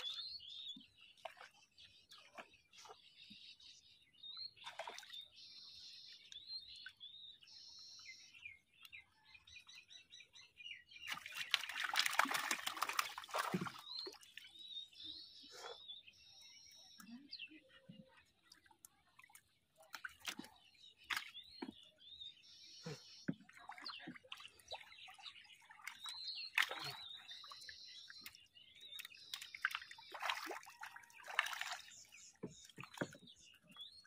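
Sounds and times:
small birds chirping: 0.0s - 34.0s
water splashing and dripping: 4.6s - 5.3s, 11.0s - 14.6s, 17.0s - 21.9s, 22.8s - 34.0s.

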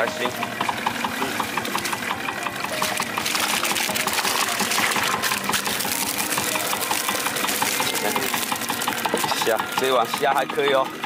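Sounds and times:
small engine running: 0.0s - 11.0s
water pouring and dripping off net: 2.7s - 10.2s.

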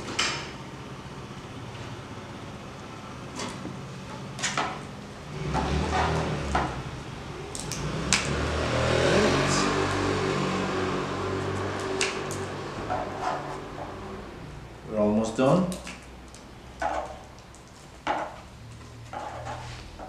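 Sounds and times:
wood creaking rub on wood: 5.5s - 6.6s, 12.8s - 14.2s, 19.0s - 20.0s.

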